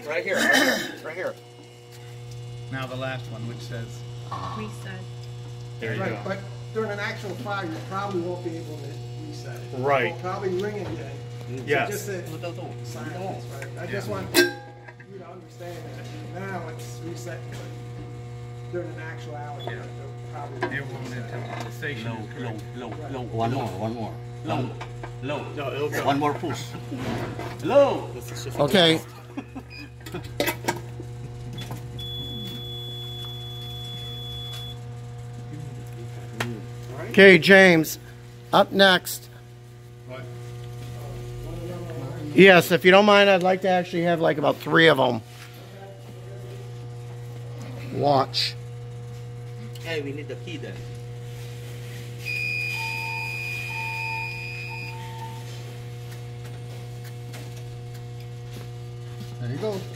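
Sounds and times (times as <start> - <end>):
electrical hum: 0.0 - 59.9
lower short beeps: 32.0 - 34.8, 52.2 - 55.5
high-pitched alarm tone: 52.2 - 55.7.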